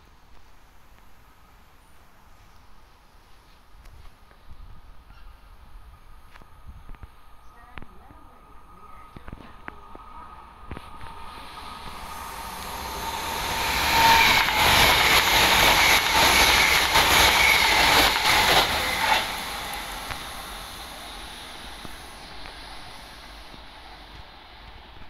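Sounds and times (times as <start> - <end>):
steady train whine: 0.0 - 25.0
train passing at speed: 0.5 - 25.0
wheel-on-rail noise: 7.6 - 25.0.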